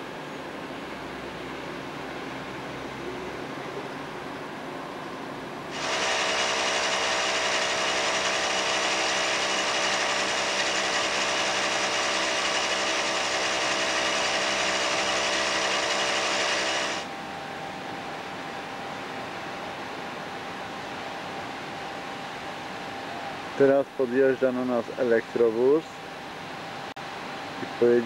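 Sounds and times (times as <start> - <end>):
loud steam hiss: 5.7 - 17.1.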